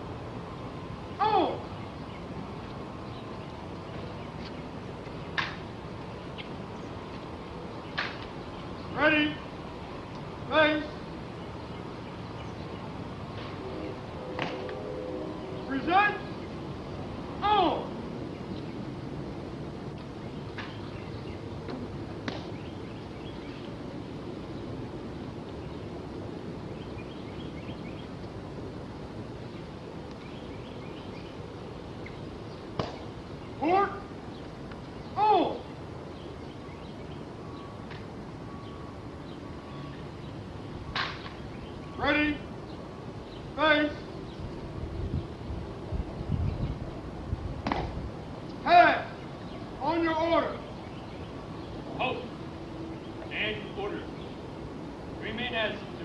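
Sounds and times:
outdoor background hiss: 0:00.0 - 0:56.0
faint bird chirps: 0:38.4 - 0:42.0.

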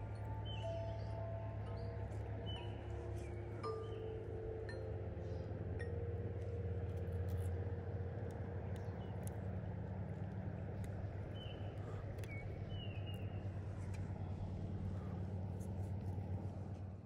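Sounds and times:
low rumble of river current: 0:00.0 - 0:17.0
wind: 0:00.0 - 0:17.0
small ticks: 0:06.4 - 0:14.2.

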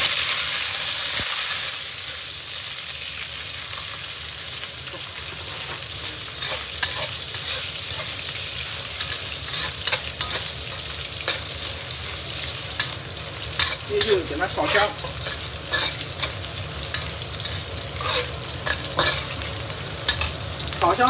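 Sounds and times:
food sizzling in a wok: 0:00.0 - 0:21.0
metal spatula scraping a pan: 0:04.9 - 0:20.7.

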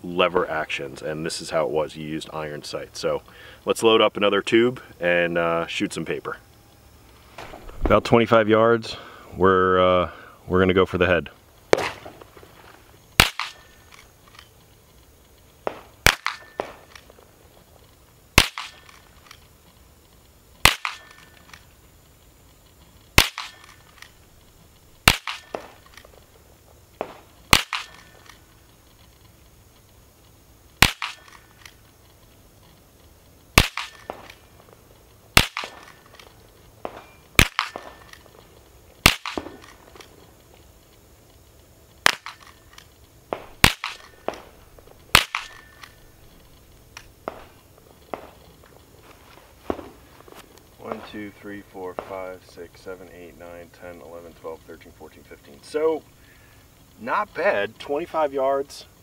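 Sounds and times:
rifle shots: 0:11.7 - 0:12.2, 0:13.2 - 0:14.0, 0:15.6 - 0:17.1, 0:18.4 - 0:19.0, 0:20.6 - 0:21.6, 0:23.1 - 0:24.2, 0:25.0 - 0:26.1, 0:27.0 - 0:28.4, 0:30.8 - 0:31.7, 0:33.5 - 0:34.4, 0:35.4 - 0:38.4, 0:39.0 - 0:40.1, 0:42.0 - 0:46.1.

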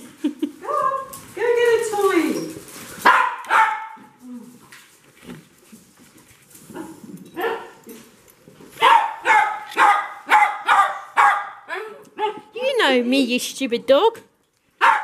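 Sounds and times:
small dog yapping: 0:03.0 - 0:04.0, 0:08.8 - 0:11.6.

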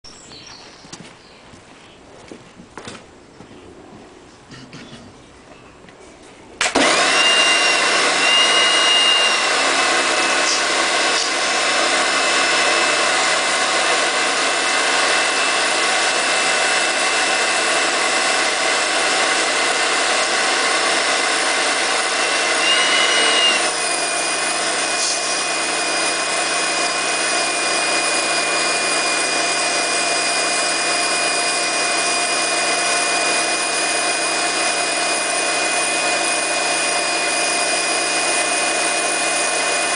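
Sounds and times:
pressure washer motor whine: 0:06.6 - 0:39.9.

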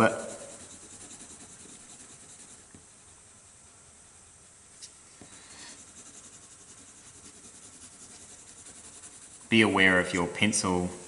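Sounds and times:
pencil scratching on paper: 0:00.0 - 0:02.8, 0:05.4 - 0:10.2.

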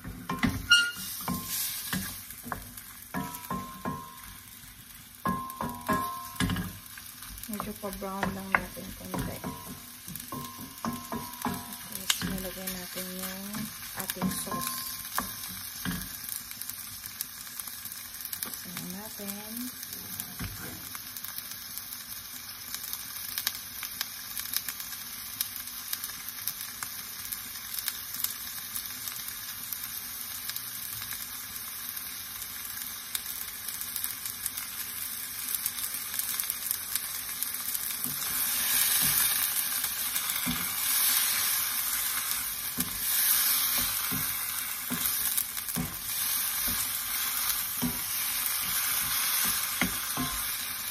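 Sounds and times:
meat sizzling in hot oil: 0:00.0 - 0:50.9.

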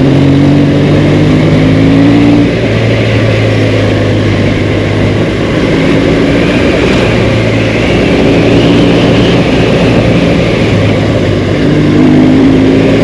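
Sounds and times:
motorcycle engine cruising: 0:00.0 - 0:13.0
wind rushing over microphone: 0:00.0 - 0:13.0.

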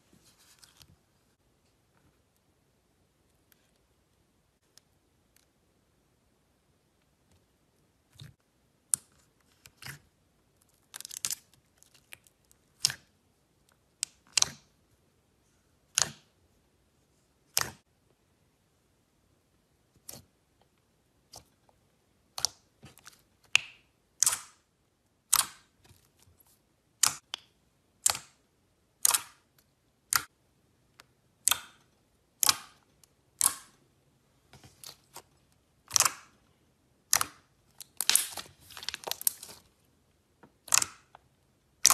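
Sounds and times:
slime popping and clicking: 0:23.5 - 0:24.6, 0:35.9 - 0:36.3, 0:37.1 - 0:39.4, 0:40.6 - 0:41.2.

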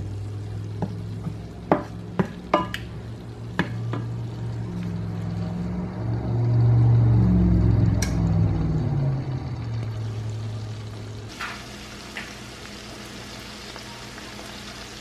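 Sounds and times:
wooden spoon stirring in frying pan: 0:00.0 - 0:05.7
spoon knocking and scraping pan: 0:00.8 - 0:02.9.

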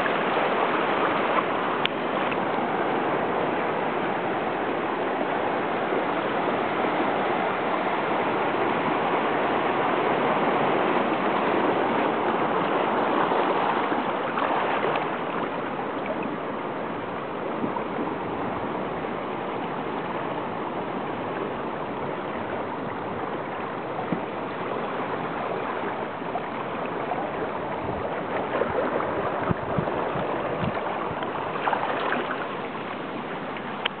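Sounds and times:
seawater washing over rocks: 0:00.0 - 0:34.0.

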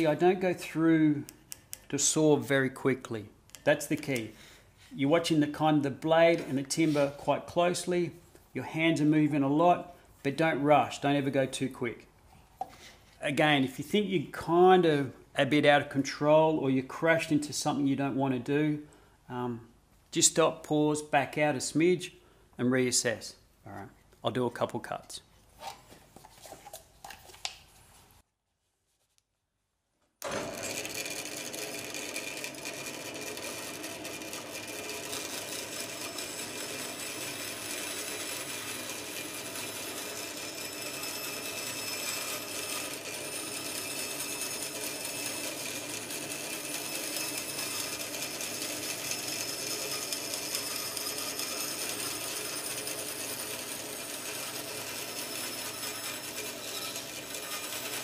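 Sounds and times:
bandsaw cutting timber: 0:30.2 - 0:58.0.

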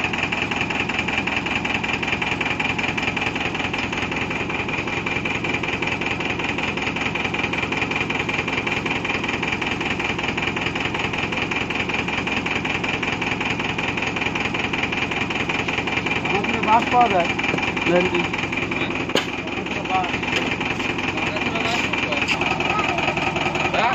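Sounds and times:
truck engine idling: 0:00.0 - 0:23.9.

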